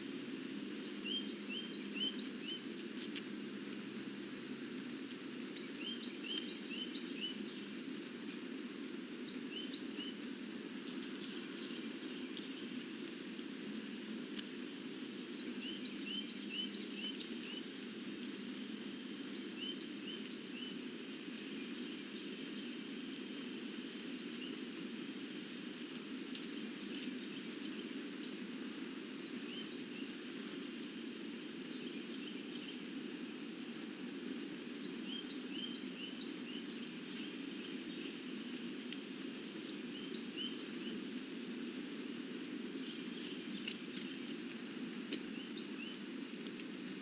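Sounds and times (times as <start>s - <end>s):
outdoor background hiss: 0.0s - 47.0s
faint bird chirps: 0.6s - 3.3s, 5.4s - 8.4s, 9.2s - 13.0s, 15.2s - 24.9s, 29.1s - 33.5s, 34.6s - 41.2s, 42.6s - 46.2s.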